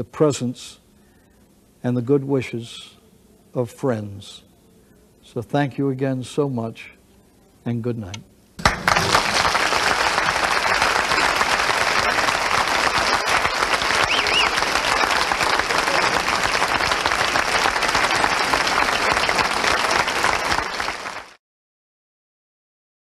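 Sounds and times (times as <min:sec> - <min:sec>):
audience applauding: 0:08.6 - 0:21.4.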